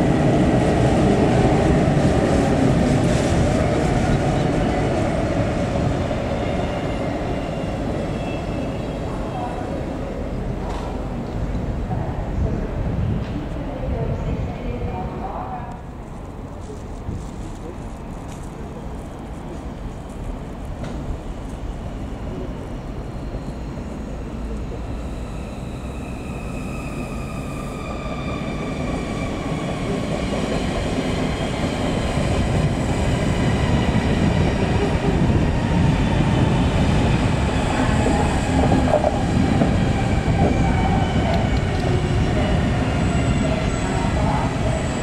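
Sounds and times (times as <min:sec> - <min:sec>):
train wheels rumbling on rail: 0:00.0 - 0:45.0
electric locomotive whine: 0:19.9 - 0:45.0
high wheel squeal: 0:24.8 - 0:29.5.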